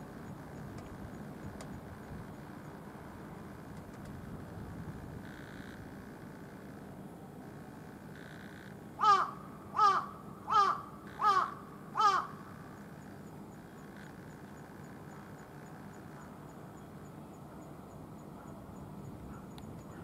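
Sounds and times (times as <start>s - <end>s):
crow cawing: 8.2s - 12.7s.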